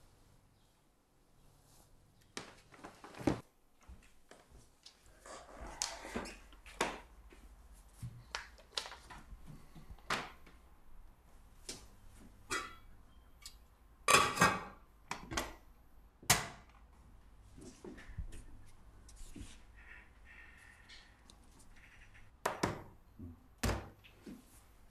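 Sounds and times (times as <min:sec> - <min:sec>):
light knocks and steps: 0:02.2 - 0:05.1.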